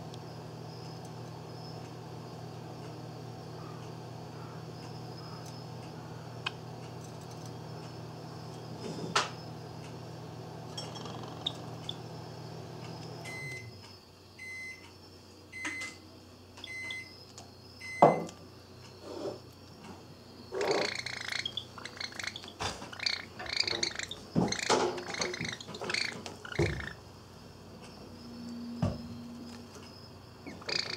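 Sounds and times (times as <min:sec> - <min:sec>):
appliance humming: 0:00.0 - 0:30.9
appliance beeps: 0:13.2 - 0:13.8, 0:14.4 - 0:14.9, 0:15.5 - 0:16.0, 0:16.6 - 0:17.2, 0:17.8 - 0:18.4
sparrow harsh scolding calls: 0:20.5 - 0:27.0, 0:30.4 - 0:30.9.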